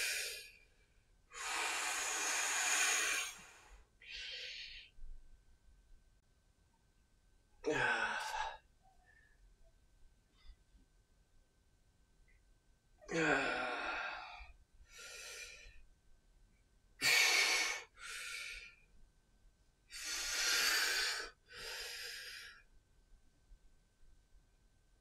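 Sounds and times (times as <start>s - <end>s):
man breathing hard: 0.0s - 0.5s, 1.3s - 5.0s, 13.2s - 15.8s, 17.0s - 18.8s, 19.9s - 22.6s.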